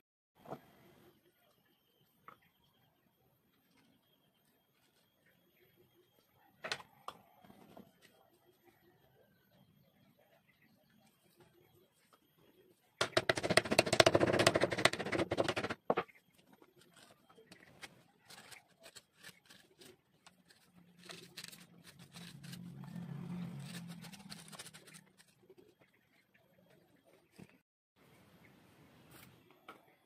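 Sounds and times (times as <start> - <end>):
knife scraping leather: 18.2 - 25.3.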